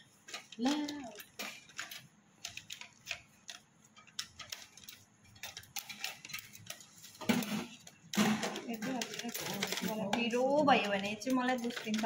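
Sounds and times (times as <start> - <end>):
person speaking: 0.6 - 1.3.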